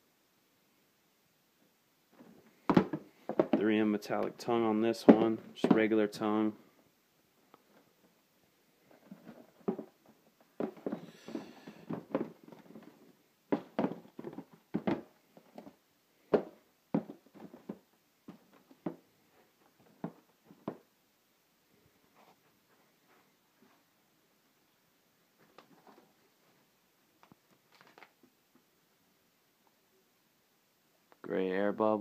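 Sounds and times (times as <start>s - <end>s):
sneakers knocking on cardboard boxes: 2.6s - 3.8s, 5.0s - 6.0s, 10.6s - 12.9s, 13.5s - 15.7s, 16.3s - 19.0s.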